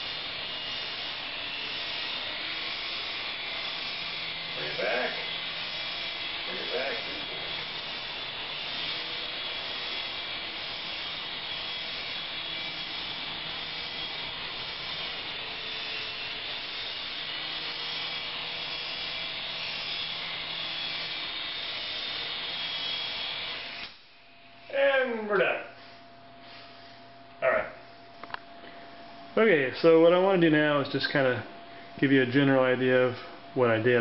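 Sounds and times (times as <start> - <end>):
toy helicopter rotors whirring: 0.0 - 24.0
thin high whine: 0.0 - 34.0.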